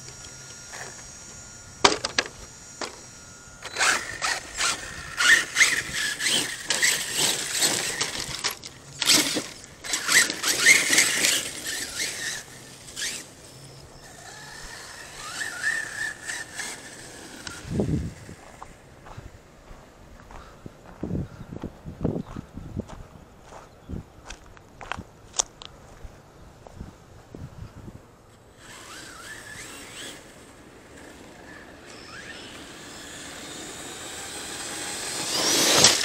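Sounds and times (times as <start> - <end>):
electric motor whining: 0.0 - 19.2, 28.5 - 36.0
tires crunching on dirt: 3.8 - 27.0, 33.2 - 36.0.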